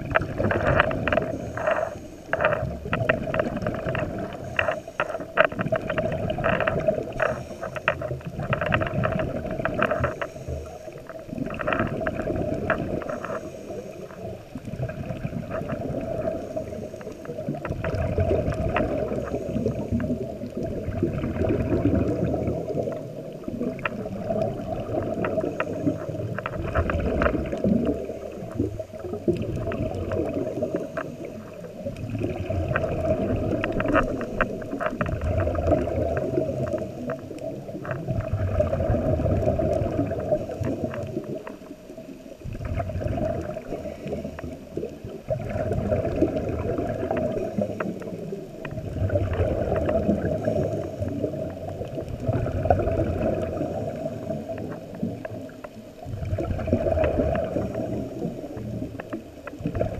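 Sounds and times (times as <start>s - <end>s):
rumbling exhaled bubbles: 0.0s - 59.9s
diver breathing through regulator: 0.5s - 2.7s, 6.8s - 8.3s, 9.9s - 11.3s, 12.4s - 14.3s, 18.9s - 20.1s, 25.0s - 26.4s.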